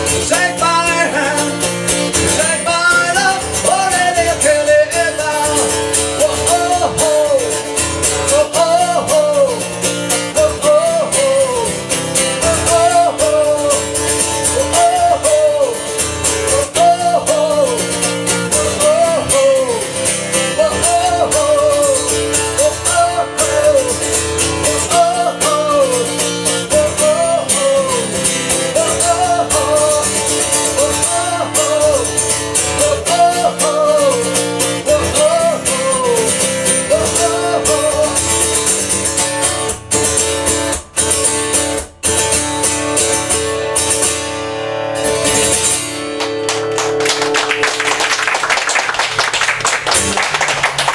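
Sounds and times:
man singing: 0.0s - 39.2s
strummed acoustic guitar: 0.0s - 50.9s
people clapping: 46.1s - 50.9s.

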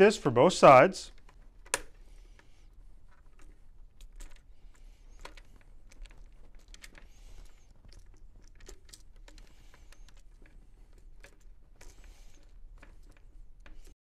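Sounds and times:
plastic buckle clicks and rustles: 1.1s - 13.9s.

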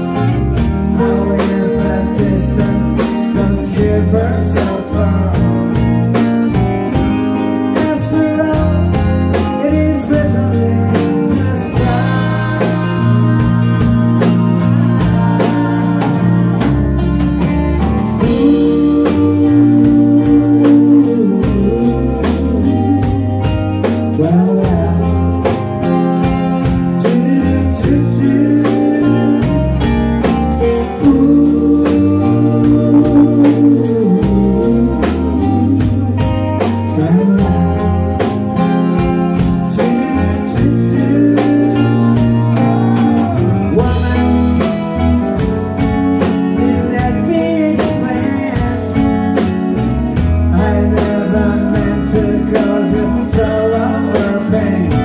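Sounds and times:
bass guitar: 0.0s - 55.0s
drum kit beat: 0.0s - 55.0s
electric guitars: 0.0s - 55.0s
singer holding long notes: 9.6s - 25.7s, 30.4s - 45.8s.

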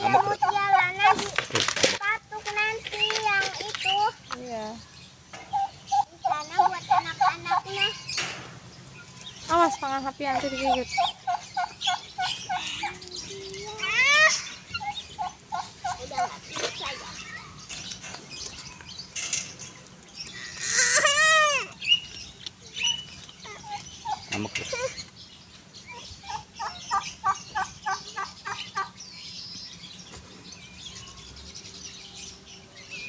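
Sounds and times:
guinea fowl clucking: 10.4s - 13.1s.

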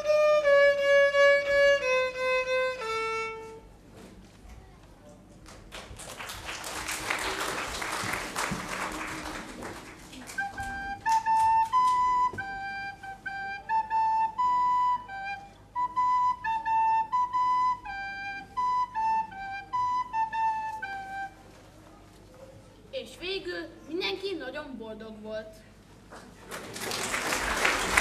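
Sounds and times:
recorder playing melody: 0.0s - 3.7s, 10.2s - 21.6s
audience clapping: 5.3s - 12.1s, 26.1s - 28.0s.

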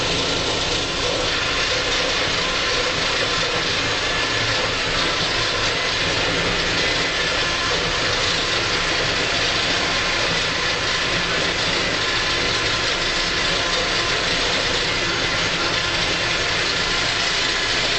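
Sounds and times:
tractor diesel engine running: 0.0s - 17.9s.

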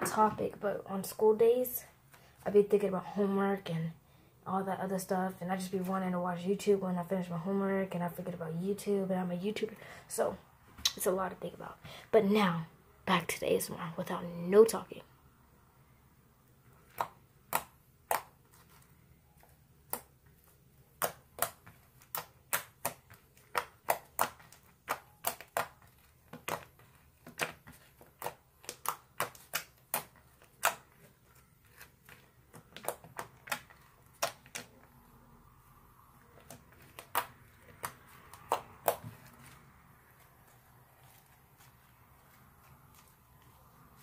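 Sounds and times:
slime clicking and popping: 21.0s - 26.7s, 32.5s - 34.7s.

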